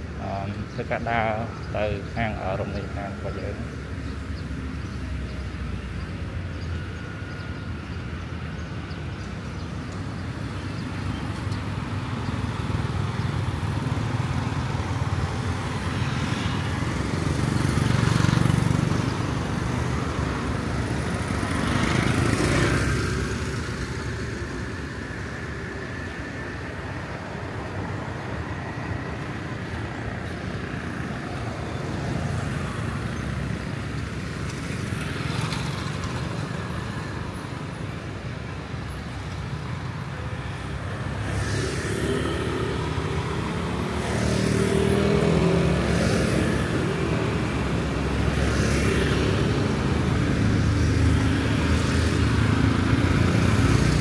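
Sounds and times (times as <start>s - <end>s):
street traffic: 0.0s - 54.0s
vehicles passing close: 0.0s - 54.0s.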